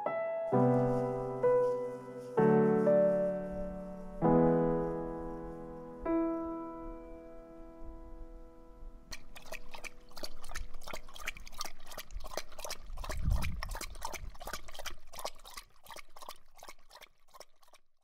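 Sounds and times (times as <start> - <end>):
dog splashing in water: 9.1 - 18.0.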